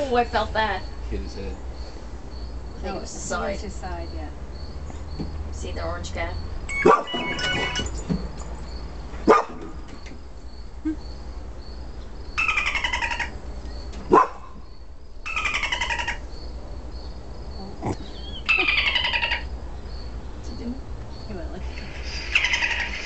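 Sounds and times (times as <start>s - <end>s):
animal call with falling pitch: 6.7s - 7.9s, 17.9s - 19.5s
sharp barks: 6.8s - 7.2s, 9.3s - 9.6s, 14.1s - 14.6s.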